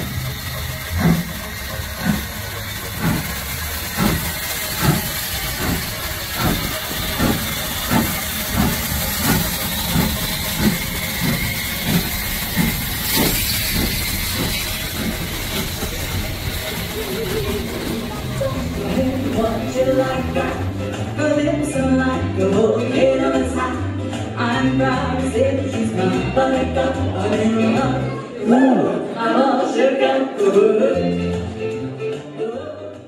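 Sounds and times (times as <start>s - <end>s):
hiss of steam: 0.0s - 20.7s
steam locomotive chuffing: 0.0s - 21.3s.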